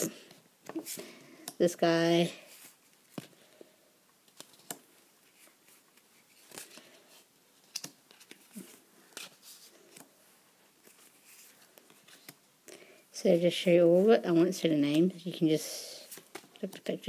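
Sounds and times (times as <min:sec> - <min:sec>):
cards rustling: 0:04.2 - 0:12.4, 0:16.0 - 0:17.0.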